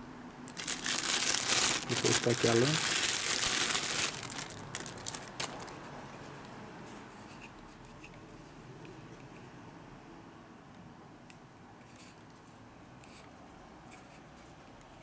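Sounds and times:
plastic bag crinkling: 0.5s - 5.8s.

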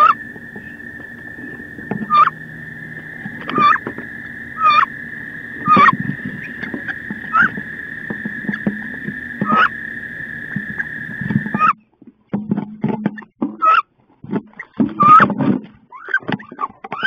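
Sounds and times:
duck squealing call: 0.0s - 11.8s, 13.6s - 13.8s.

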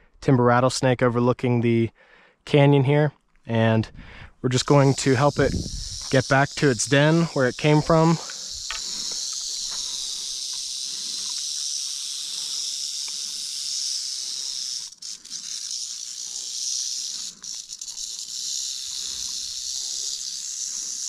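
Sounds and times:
rattlesnake tail rattle buzzing: 4.6s - 21.0s.

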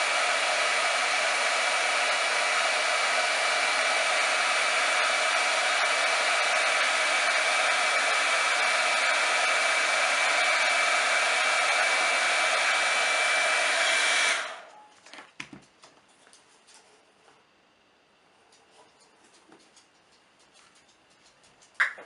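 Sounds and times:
hair dryer blowing with whine: 0.0s - 14.8s.

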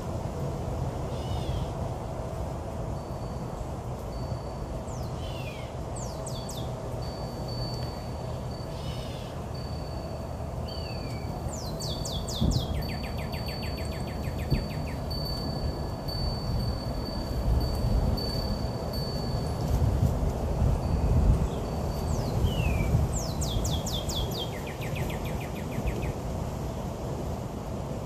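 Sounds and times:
birds chirping: 4.9s - 7.1s, 7.8s - 16.5s, 21.4s - 26.2s
bird trill: 4.9s - 17.2s, 21.4s - 26.2s
high ringing tone: 6.9s - 19.9s.

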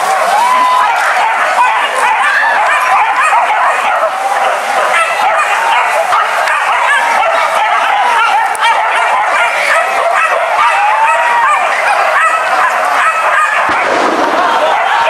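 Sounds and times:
dogs yelping and whining: 0.8s - 13.8s.

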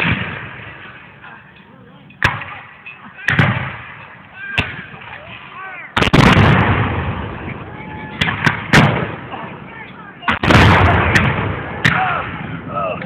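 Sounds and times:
black-powder gunshots with echo: 0.0s - 1.0s, 3.3s - 5.2s, 6.0s - 9.4s, 10.3s - 12.7s.

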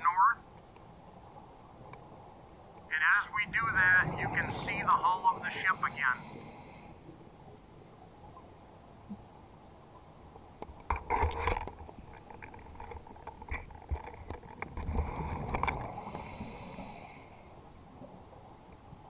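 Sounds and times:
regulator bubbles gurgling underwater: 12.0s - 19.0s.

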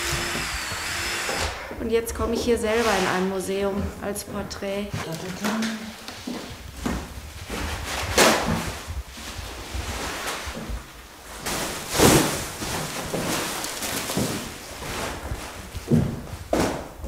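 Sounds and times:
plastic wrapping crinkling: 5.0s - 16.9s.

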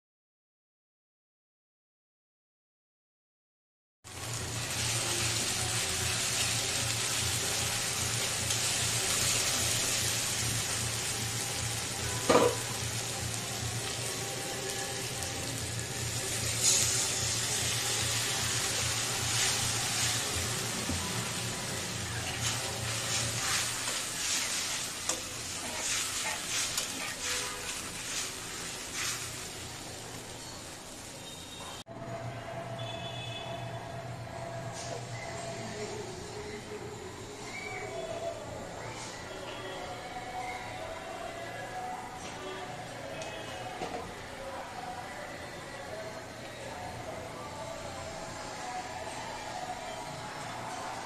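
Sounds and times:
onions sizzling in hot oil: 4.1s - 31.5s
spatula scraping pan: 22.2s - 29.6s.

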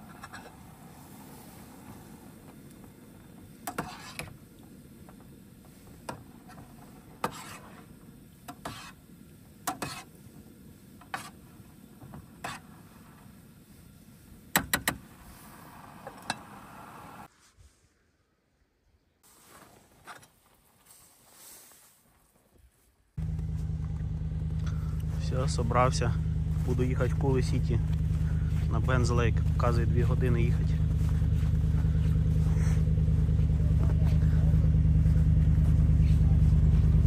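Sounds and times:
steady low hum: 23.2s - 37.0s.

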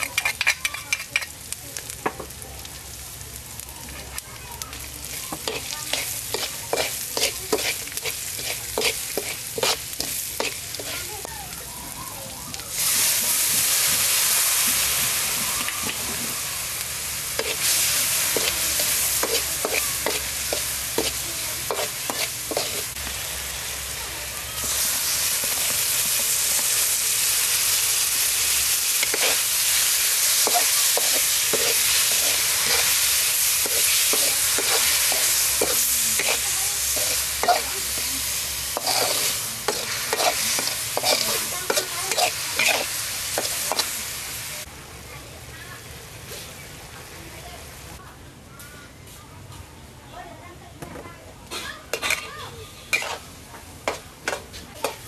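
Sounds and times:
metal spatula scraping a wok: 0.0s - 1.5s, 5.0s - 11.0s, 17.3s - 23.0s, 28.5s - 44.0s, 51.5s - 55.0s
loud steady sizzle: 0.0s - 48.7s.

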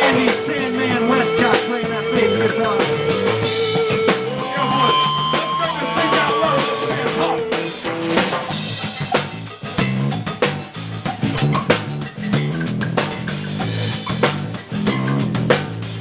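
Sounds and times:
held instrument notes: 0.0s - 8.5s
drum kit: 0.0s - 16.0s
electric bass guitar line: 0.0s - 16.0s.

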